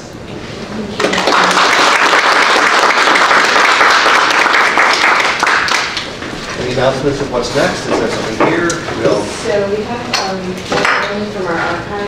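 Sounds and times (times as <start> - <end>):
audience applauding: 1.0 - 6.2.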